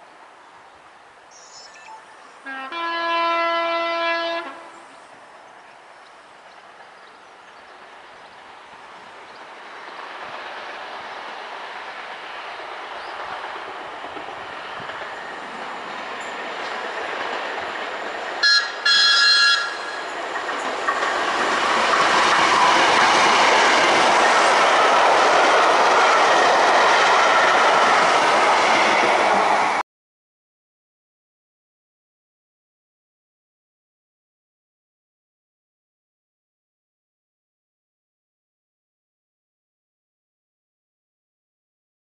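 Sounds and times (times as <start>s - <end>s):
train running: 1.6s - 29.8s
train horn blasts: 2.4s - 4.8s, 18.4s - 20.0s.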